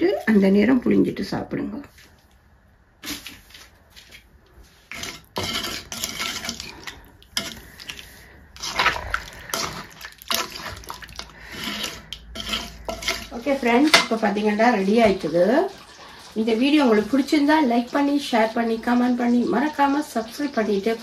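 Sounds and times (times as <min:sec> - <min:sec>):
spoon stirring in metal pot: 0:04.9 - 0:16.0.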